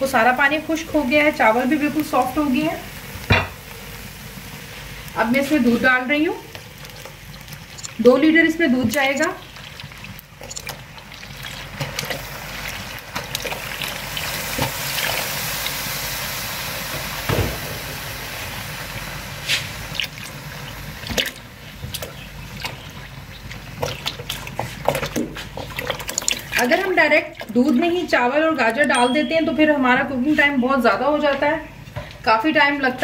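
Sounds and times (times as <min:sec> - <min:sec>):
milk pouring and splashing: 0:08.9 - 0:15.8, 0:21.0 - 0:27.9.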